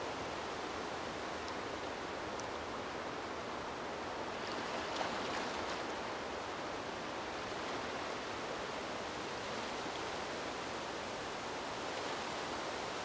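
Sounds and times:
gentle waves lapping: 0:04.2 - 0:08.0.

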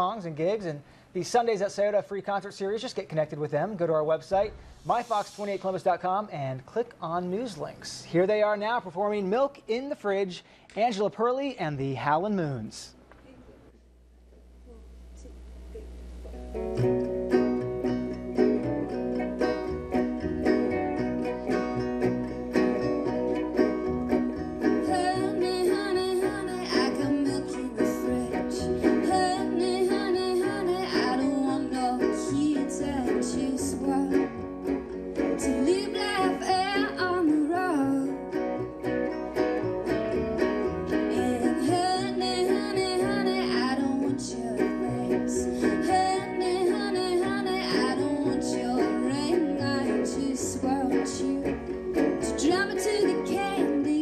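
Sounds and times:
resonator guitar: 0:14.2 - 0:54.0
electric guitar: 0:14.7 - 0:54.0
plucked upright bass: 0:15.8 - 0:54.0
woman singing: 0:24.8 - 0:34.4, 0:35.3 - 0:38.4, 0:41.0 - 0:54.0.

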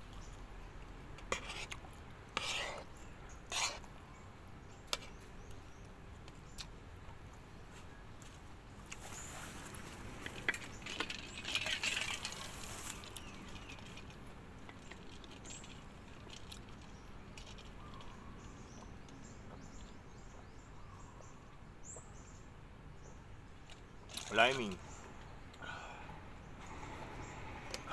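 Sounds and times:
small birds chirping: 0:00.0 - 0:27.9.

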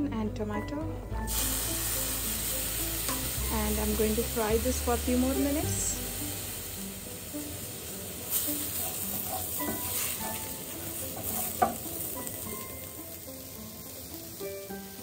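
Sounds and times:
light sizzle of frying: 0:01.2 - 0:15.0
wooden spatula scraping a pan: 0:08.3 - 0:12.2.

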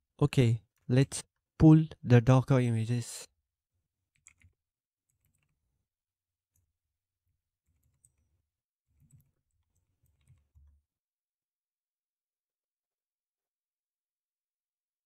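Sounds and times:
computer keyboard keystrokes: 0:04.1 - 0:05.6, 0:09.0 - 0:10.8.

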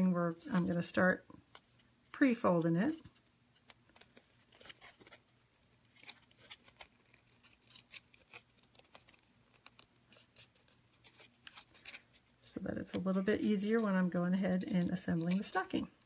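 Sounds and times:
cardstock crinkling and clicking: 0:03.0 - 0:05.2, 0:05.9 - 0:12.1.

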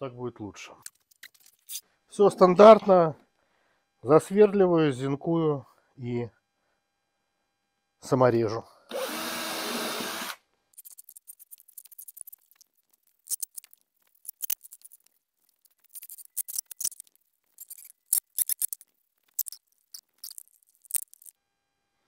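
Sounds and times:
drill-driver whirring: 0:08.9 - 0:10.4.

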